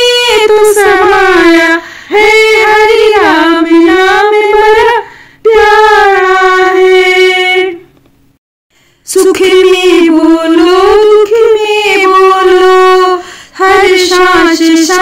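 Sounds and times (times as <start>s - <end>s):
woman singing unaccompanied: 0.0s - 7.9s, 9.0s - 15.0s
woman breathing: 1.8s - 2.1s, 5.0s - 5.4s, 8.7s - 9.0s, 13.2s - 13.6s.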